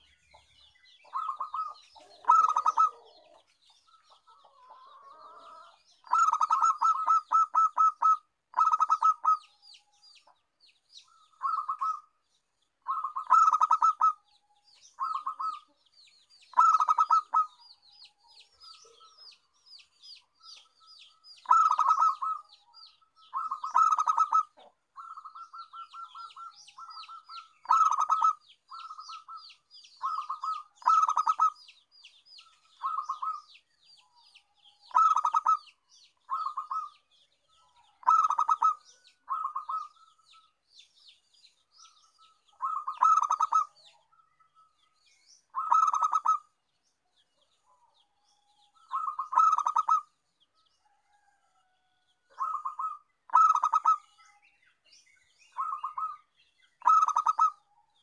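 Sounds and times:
dove cooing: 1.0 - 9.5, 11.1 - 12.1, 12.8 - 14.2, 15.0 - 15.8, 16.5 - 17.6, 21.4 - 31.6, 32.8 - 33.5, 34.9 - 37.0, 37.7 - 40.5, 42.5 - 44.1, 45.5 - 46.5, 48.8 - 50.1, 52.3 - 54.2, 55.6 - 56.2, 56.8 - 57.6.

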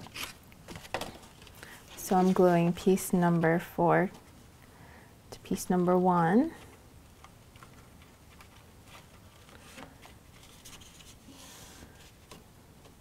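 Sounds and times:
cardstock rustling and ticking: 6.5 - 11.2.

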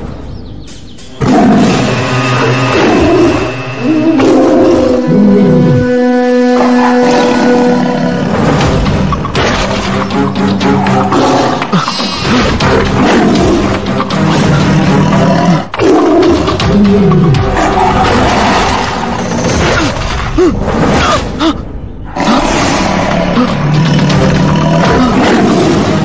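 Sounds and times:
dramatic background music: 0.0 - 26.0
cartoon tiger roaring and snarling: 22.1 - 26.0.

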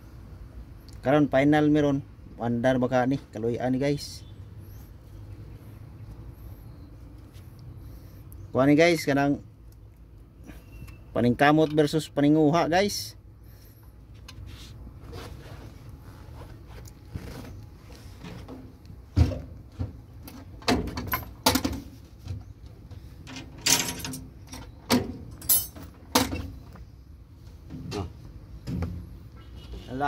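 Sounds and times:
tools knocking and clinking: 23.3 - 26.5.

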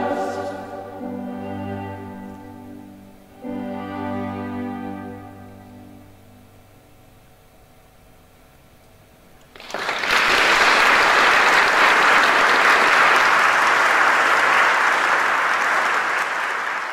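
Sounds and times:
choir and strings chord: 0.0 - 6.4
audience applauding: 9.5 - 16.9.

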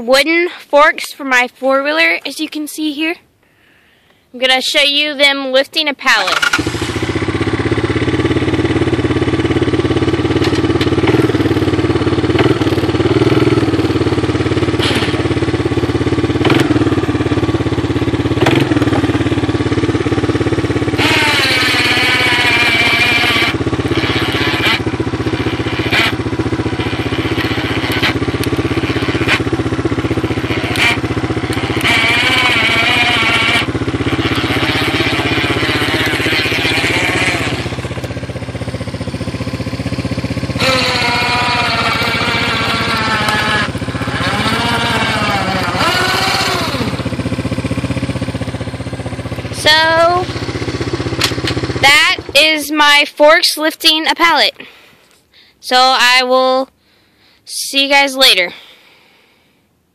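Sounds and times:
electric winch whining: 6.2 - 19.2, 20.8 - 52.5
engine idling: 6.2 - 57.4.

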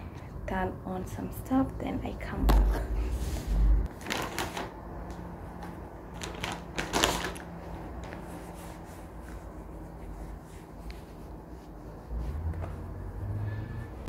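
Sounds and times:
paper tissue rustling: 3.0 - 4.8, 5.4 - 13.5.

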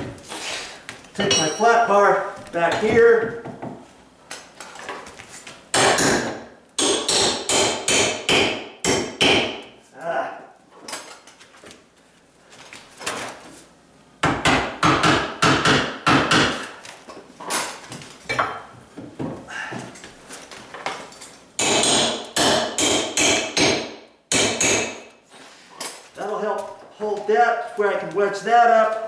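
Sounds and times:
hammer striking steel bar: 5.8 - 9.6, 21.6 - 25.0.

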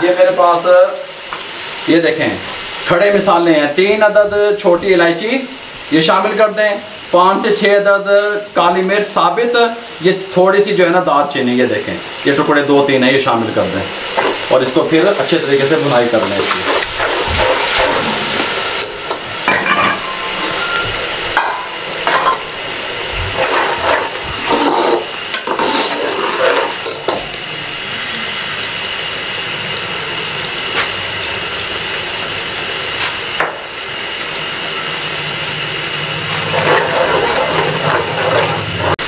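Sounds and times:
sauce sizzling and bubbling: 0.0 - 39.0
ladle scraping a pot: 23.3 - 27.2, 36.3 - 39.0.

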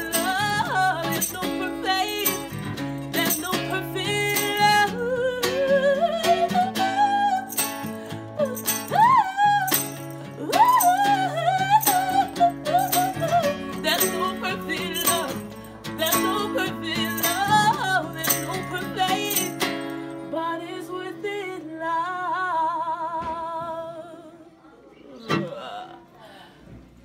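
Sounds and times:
acoustic guitar strumming: 0.0 - 21.6
woman singing: 0.0 - 24.5.

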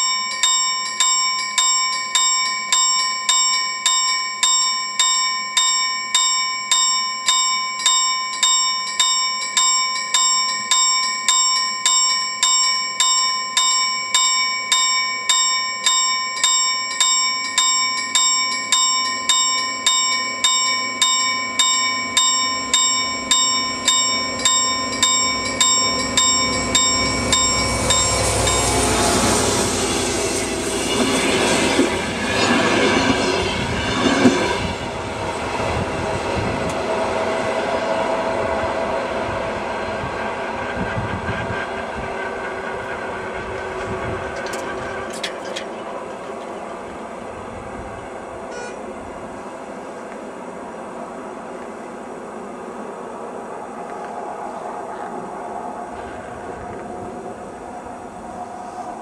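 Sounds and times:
level crossing bell: 0.0 - 29.8, 48.5 - 48.8
train wheel noise: 0.0 - 59.0
diesel locomotive rumble: 18.9 - 59.0.

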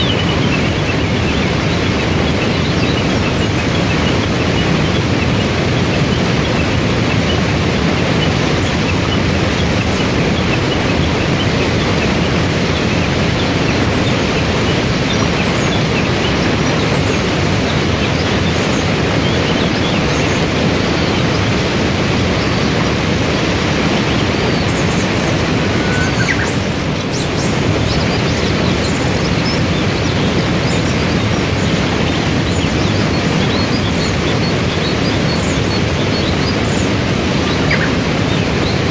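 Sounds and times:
waterfall and rapids rushing: 0.0 - 38.9
faint bird chirps: 22.4 - 31.0.

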